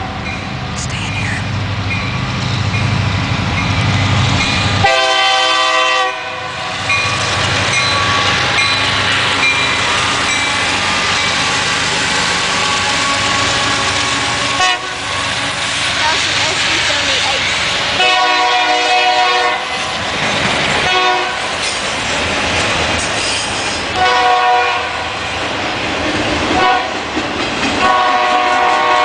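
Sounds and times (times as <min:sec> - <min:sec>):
locomotive horn blasts: 0:04.8 - 0:06.7, 0:14.6 - 0:15.0, 0:18.0 - 0:19.8, 0:20.9 - 0:21.4, 0:24.0 - 0:25.1, 0:26.6 - 0:26.9, 0:27.8 - 0:29.0.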